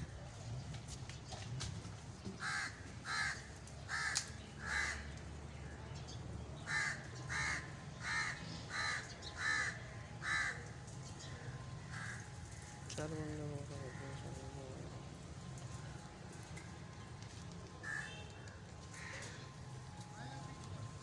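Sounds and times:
crow cawing: 2.4s - 5.0s, 6.7s - 10.6s, 11.9s - 12.3s, 17.8s - 18.2s, 18.9s - 19.6s.

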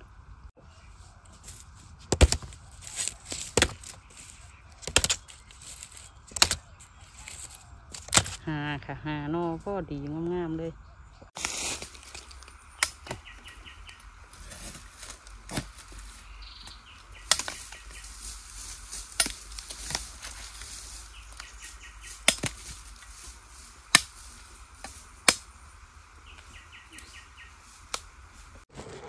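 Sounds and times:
knife chopping bamboo: 2.0s - 4.2s, 4.8s - 6.6s, 22.2s - 22.8s, 23.9s - 24.2s, 24.8s - 25.5s.

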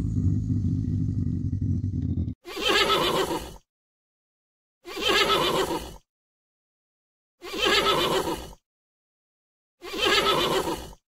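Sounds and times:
low rough animal rumbling: 0.0s - 2.4s.

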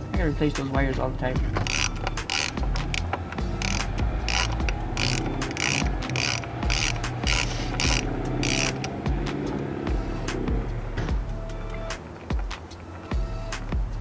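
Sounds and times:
ratchet wrench clicking: 1.5s - 9.0s.

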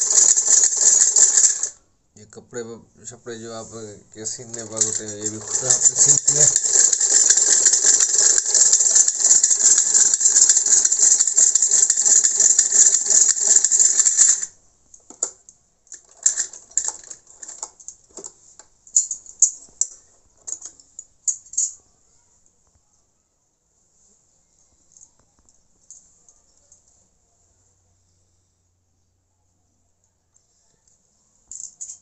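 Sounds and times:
sewing machine clattering: 0.0s - 1.8s, 4.4s - 14.5s, 16.0s - 18.3s.

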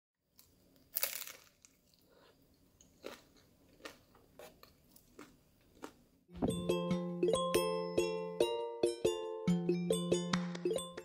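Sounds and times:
loud bite crunch: 0.9s - 2.0s
chewing crunches: 0.9s - 6.0s.

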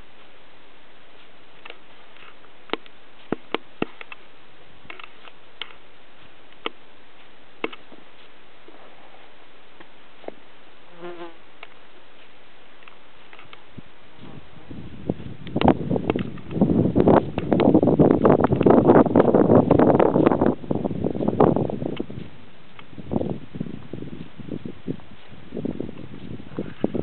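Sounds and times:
steady hiss: 0.0s - 27.0s
sharp clicks: 15.4s - 16.6s.

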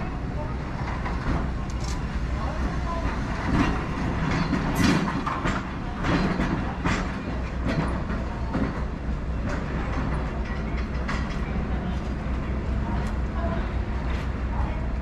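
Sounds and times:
streetcar humming: 0.0s - 15.0s
wheel clacks over rail joints: 0.7s - 12.2s.

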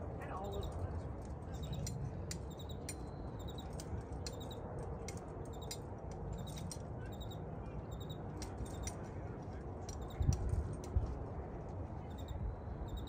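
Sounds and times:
wind buffeting microphone: 0.0s - 13.0s
faint high chirps: 1.6s - 4.6s, 5.5s - 5.8s, 6.4s - 8.9s, 12.0s - 13.0s
sharp clicks: 1.6s - 9.1s, 9.8s - 11.0s.

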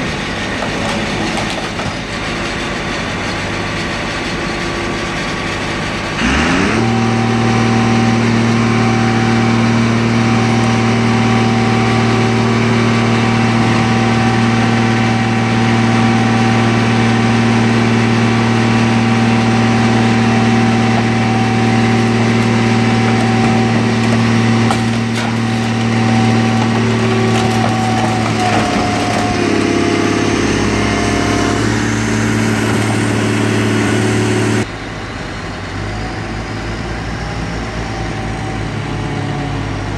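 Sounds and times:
hydraulic power unit humming: 6.2s - 34.7s.

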